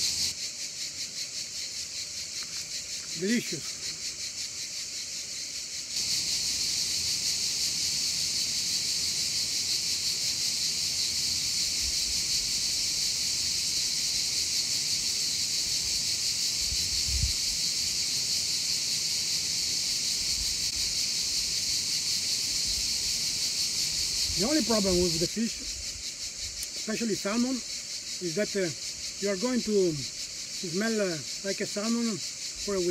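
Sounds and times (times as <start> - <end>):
insects buzzing chorus: 0.0 - 32.9.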